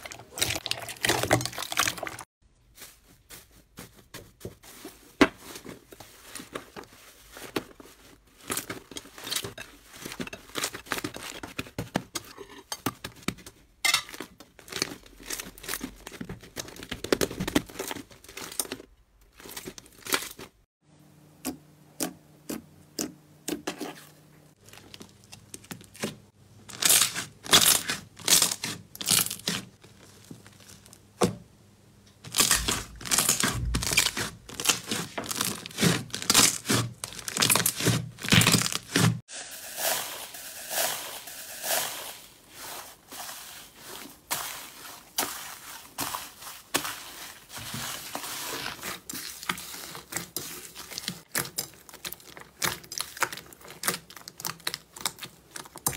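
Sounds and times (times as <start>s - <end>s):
foil flakes crinkling: 0.0s - 11.6s, 14.1s - 20.6s, 24.6s - 31.0s, 32.2s - 55.9s
slime crackling and popping: 32.3s - 39.1s, 48.6s - 55.9s.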